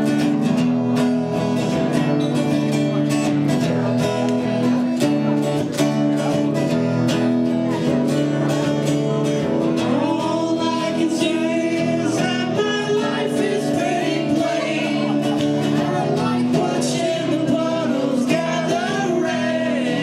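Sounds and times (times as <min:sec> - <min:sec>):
strummed guitar: 0:00.0 - 0:20.0
person singing: 0:08.2 - 0:20.0.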